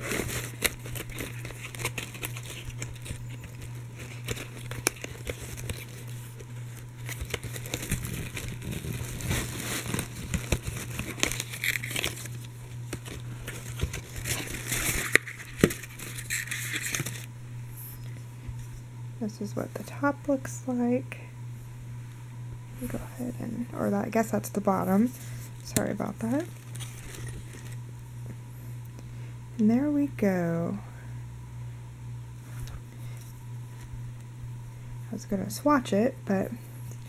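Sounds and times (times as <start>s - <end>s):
packaging crinkling: 0.0s - 17.3s, 25.2s - 27.9s
low hum: 0.0s - 37.0s.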